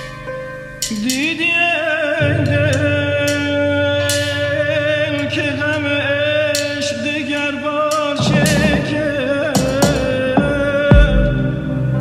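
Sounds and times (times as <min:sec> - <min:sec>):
low steady instrumental accompaniment: 0:00.0 - 0:12.0
man singing long held notes: 0:00.9 - 0:12.0.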